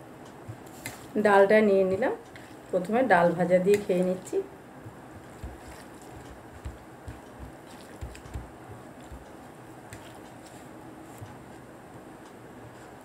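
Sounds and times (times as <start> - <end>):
hands mixing rice squishing: 1.8 - 11.7.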